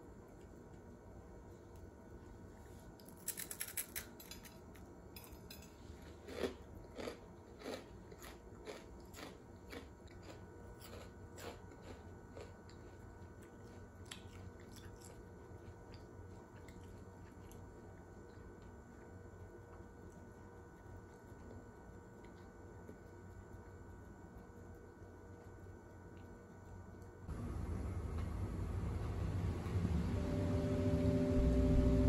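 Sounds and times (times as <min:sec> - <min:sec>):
low hum: 0:15.5 - 0:32.0.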